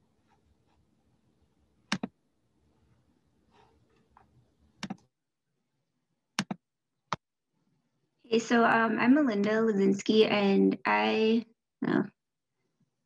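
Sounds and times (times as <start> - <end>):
computer mouse double-clicks: 1.9 - 2.2, 4.8 - 5.1, 6.4 - 6.6.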